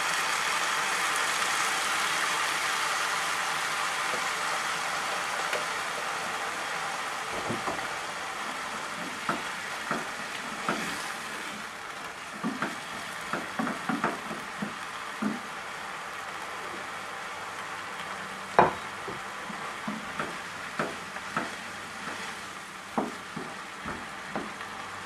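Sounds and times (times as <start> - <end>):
wine sizzling in hot pan: 0.0 - 25.0
wooden spatula knocking on pan: 7.4 - 7.9, 9.0 - 10.9, 12.4 - 15.4, 18.6 - 19.2, 19.8 - 22.2, 23.0 - 24.6.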